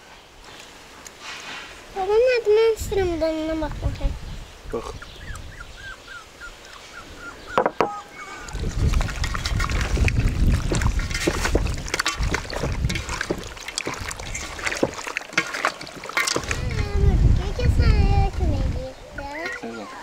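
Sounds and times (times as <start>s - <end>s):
wet squelching and slapping: 8.5s - 17.0s.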